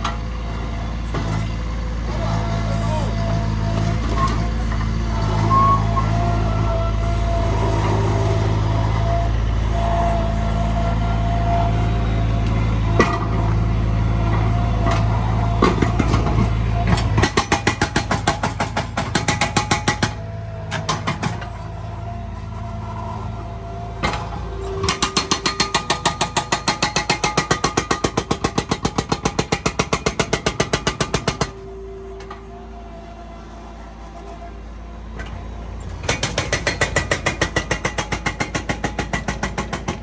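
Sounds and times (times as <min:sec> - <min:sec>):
loader engine running: 0:00.0 - 0:40.0
hydraulic breaker hammering concrete: 0:14.8 - 0:21.5, 0:24.8 - 0:31.6, 0:36.0 - 0:40.0.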